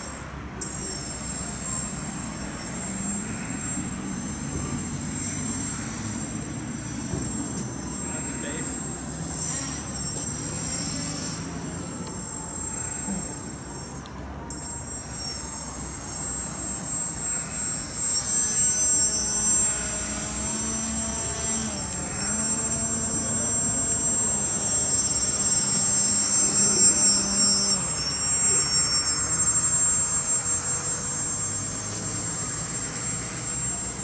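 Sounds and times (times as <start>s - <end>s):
electric motor and propeller whine: 0.0s - 34.0s.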